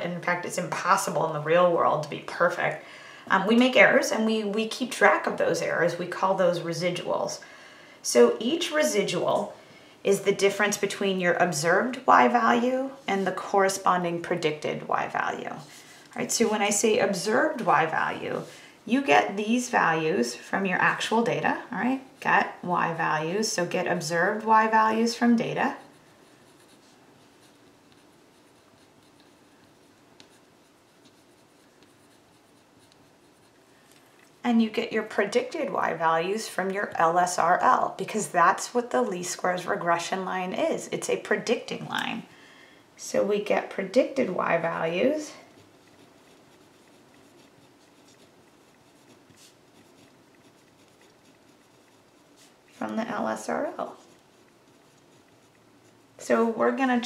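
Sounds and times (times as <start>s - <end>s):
pen scratching on paper: 22.2s - 33.6s, 45.5s - 56.9s.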